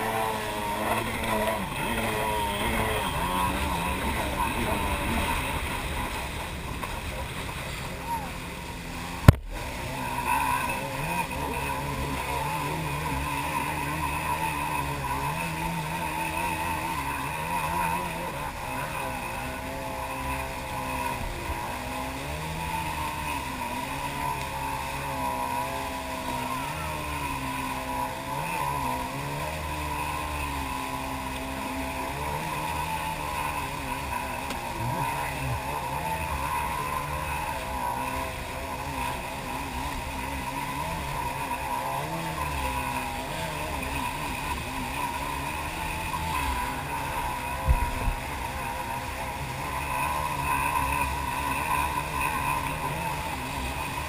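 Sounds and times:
jet ski engine running: 0.0s - 54.0s.

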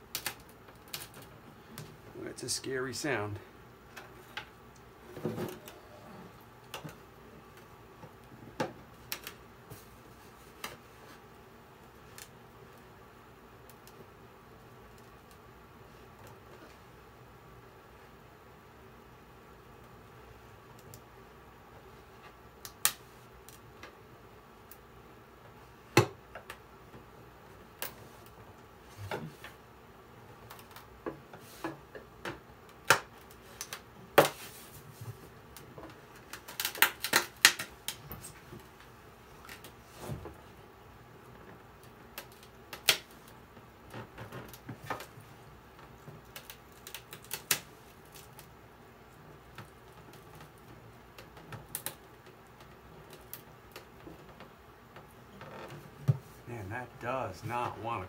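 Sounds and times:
glue joint cracking and popping: 0.1s - 1.9s, 32.3s - 34.4s, 35.6s - 38.2s, 41.8s - 45.2s, 45.8s - 48.5s, 49.5s - 54.5s.

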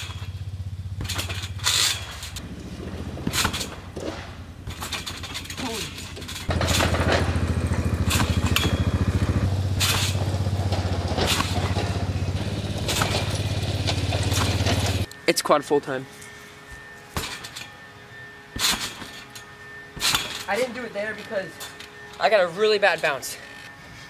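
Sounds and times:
trampoline springs bouncing: 0.0s - 15.1s, 16.1s - 23.7s
small engine running: 2.2s - 4.1s, 6.5s - 15.1s.

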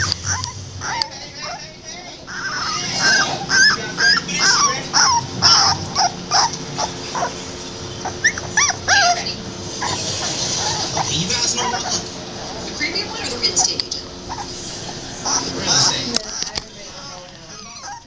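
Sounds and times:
puppy yelps: 0.0s - 1.6s, 2.3s - 7.4s, 8.0s - 12.0s
puppies whimpering and squealing: 0.0s - 18.0s.

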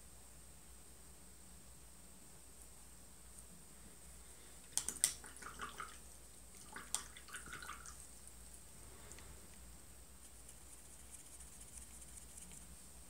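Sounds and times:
water swishing: 4.8s - 8.2s.

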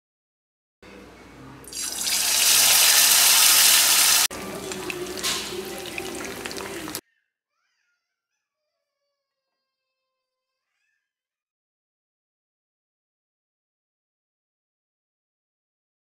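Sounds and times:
fish sizzling in hot oil: 1.7s - 7.0s
oil crackling: 1.7s - 7.0s.

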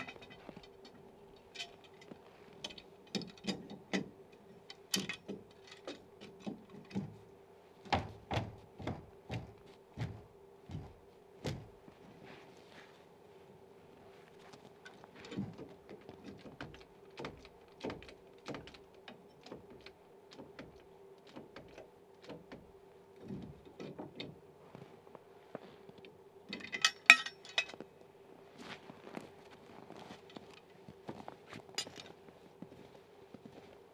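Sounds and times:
faint steady hum: 0.0s - 33.9s
hand tool knocking on wood: 7.9s - 10.9s.

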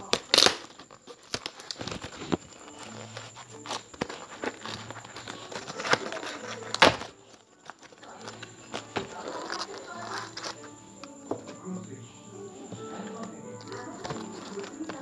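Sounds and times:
cardboard box being opened by hand: 1.3s - 10.6s.

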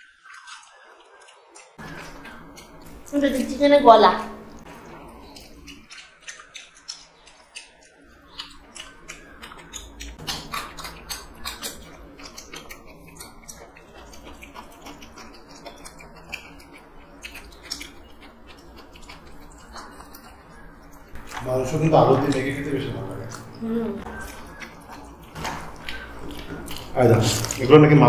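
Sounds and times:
people chewing food: 0.0s - 28.0s
wet mouth clicks and smacks: 4.6s - 21.5s, 23.2s - 27.6s.

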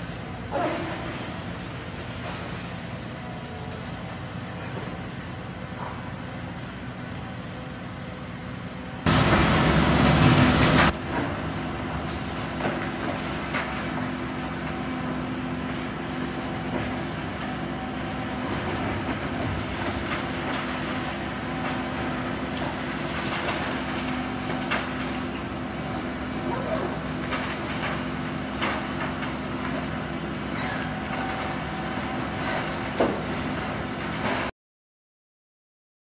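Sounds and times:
excavator engine and hydraulics: 0.0s - 34.5s
loud rush of noise: 9.1s - 11.0s.

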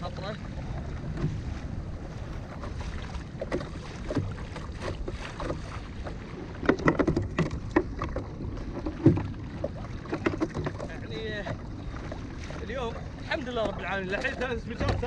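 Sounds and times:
low wind rumble on microphone: 0.0s - 15.0s
water splashing against kayak hull: 0.0s - 15.0s.

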